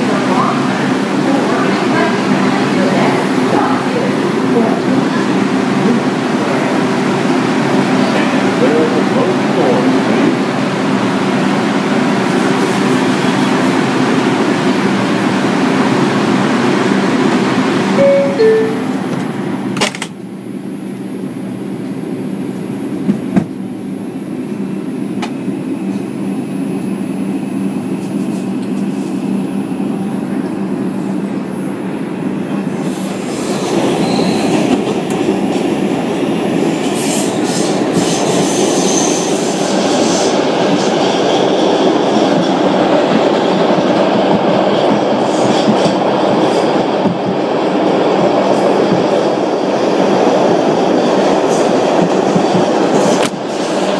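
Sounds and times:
subway train hum: 0.0 - 53.9
wheels rumbling and clattering on rail: 0.0 - 53.9
high wheel squeals: 33.9 - 34.6.

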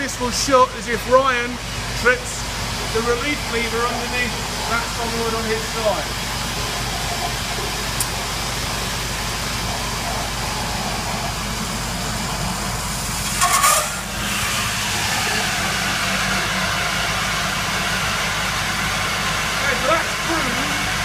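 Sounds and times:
water rushing through pipes: 0.0 - 21.0
sharp hiss with clatter: 13.0 - 15.4.

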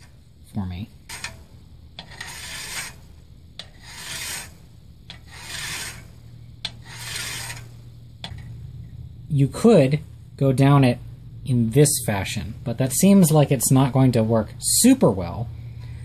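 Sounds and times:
hand file scraping steel: 1.1 - 8.5.

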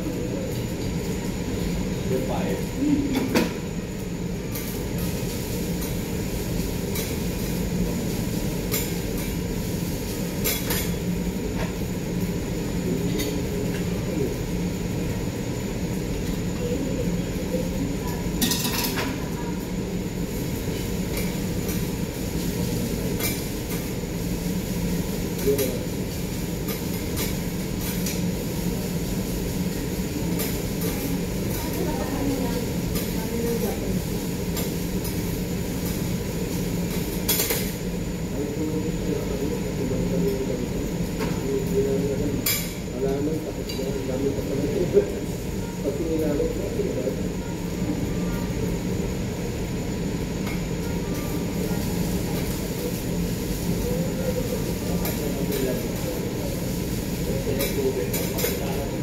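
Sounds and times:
grill rumbling: 0.0 - 59.0
metal spatulas clinking on griddle: 18.4 - 19.1, 36.9 - 37.7, 57.6 - 58.6.

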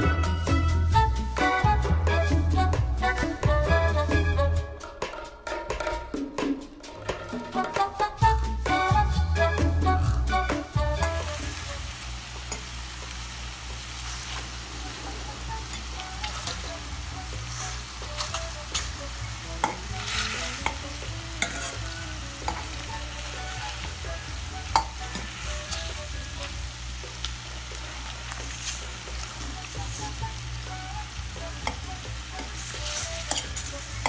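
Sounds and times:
chicken sizzling in hot oil: 10.6 - 34.0
utensil scraping a pot: 17.4 - 23.8, 31.6 - 34.0.

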